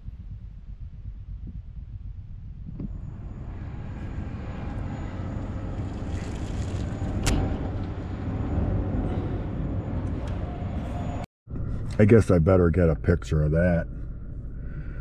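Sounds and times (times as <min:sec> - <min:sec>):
motor vehicle approaching: 0:02.8 - 0:12.2.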